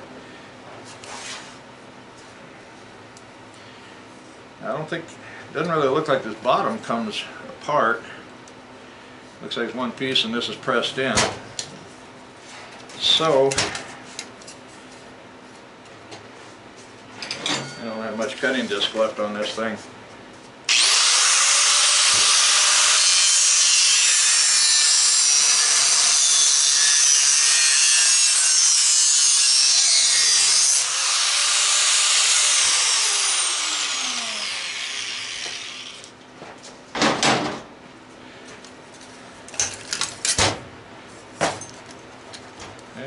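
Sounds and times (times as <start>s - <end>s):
angle grinder cutting metal: 20.7s - 36.1s.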